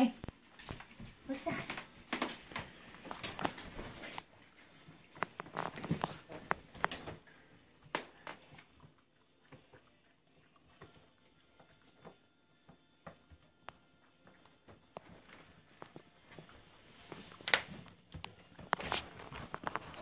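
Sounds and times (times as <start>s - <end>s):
puppy claws and mouth clicking: 1.6s - 16.6s.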